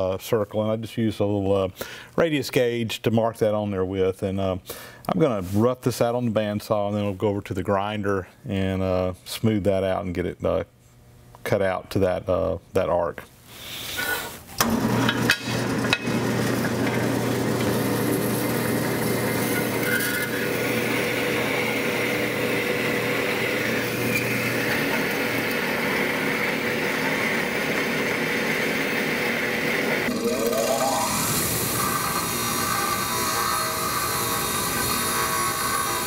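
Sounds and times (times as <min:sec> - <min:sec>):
bandsaw cutting steel: 0:14.6 - 0:36.0.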